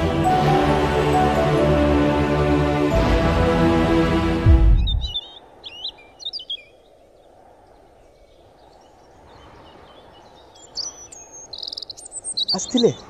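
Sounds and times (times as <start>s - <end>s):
small birds chirping: 4.6s - 13.0s.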